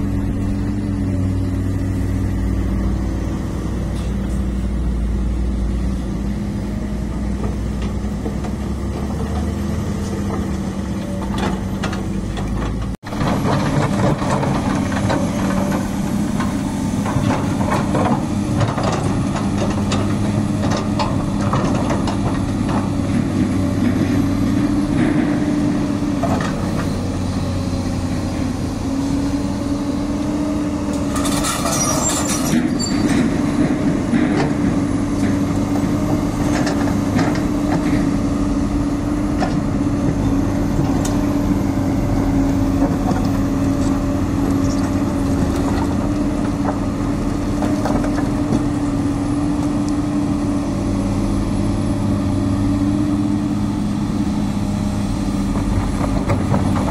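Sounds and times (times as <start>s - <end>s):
excavator diesel engine running: 0.0s - 56.9s
scraping and clattering rubble: 11.0s - 27.0s, 31.0s - 38.2s, 42.7s - 49.0s, 55.5s - 56.9s.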